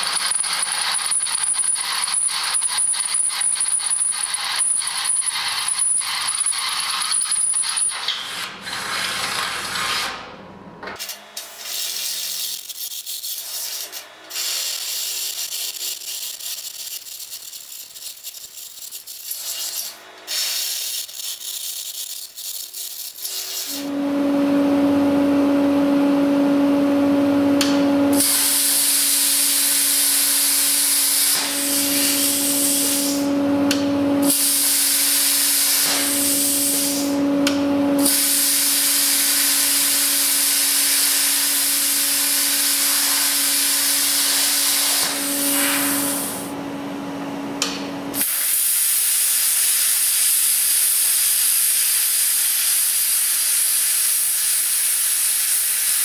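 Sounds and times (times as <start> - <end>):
plasma cutter hissing: 19.1 - 21.8, 27.6 - 37.2, 38.0 - 46.5, 47.6 - 56.0
steady hum: 23.7 - 38.2.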